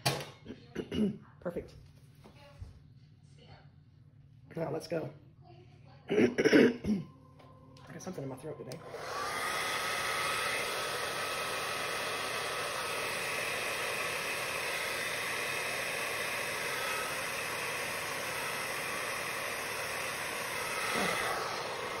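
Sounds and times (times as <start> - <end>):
faint hair dryer whine: 7.8 - 22.0
hair dryer blowing air: 8.6 - 22.0.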